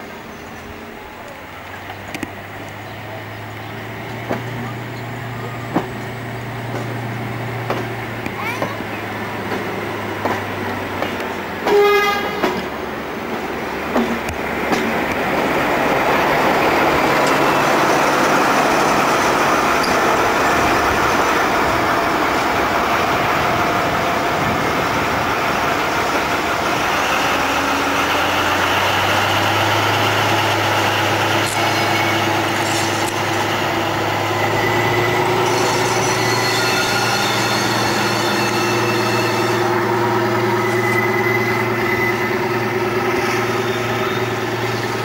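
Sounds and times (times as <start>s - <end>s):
train rumbling on track: 0.0s - 45.0s
low diesel engine hum: 0.1s - 11.4s.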